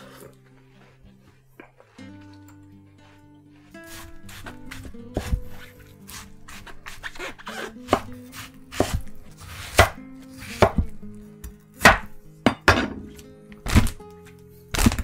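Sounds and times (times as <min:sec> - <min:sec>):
knife cutting watermelon: 0:03.0 - 0:11.0.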